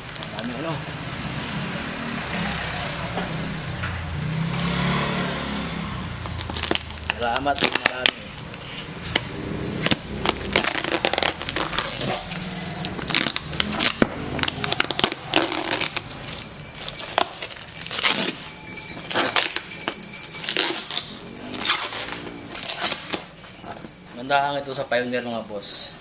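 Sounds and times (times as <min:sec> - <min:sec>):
packing tape peeled off cardboard: 0:06.2 - 0:12.4.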